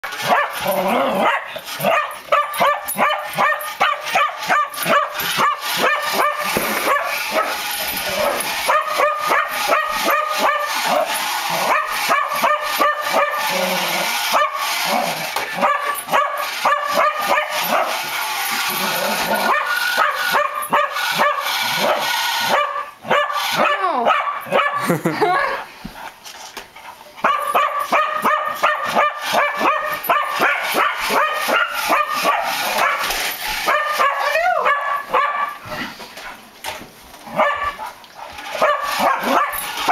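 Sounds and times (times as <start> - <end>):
dog barking: 0.2 - 0.6, 1.2 - 7.6, 8.7 - 13.4, 14.3 - 14.6, 15.6 - 18.0, 19.5 - 24.8, 27.2 - 35.6, 37.3 - 38.0, 38.6 - 39.9.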